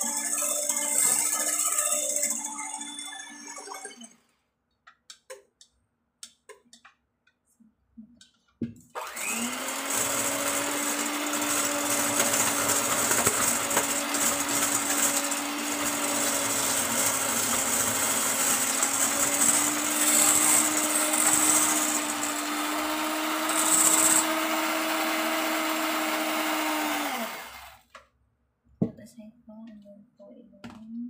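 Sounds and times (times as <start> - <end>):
electric hand mixer running: 0.0 - 2.9, 9.0 - 27.8.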